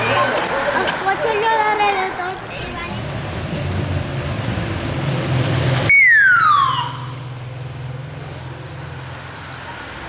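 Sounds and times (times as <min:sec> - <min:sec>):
siren falling whoop: 0:05.9 - 0:07.2.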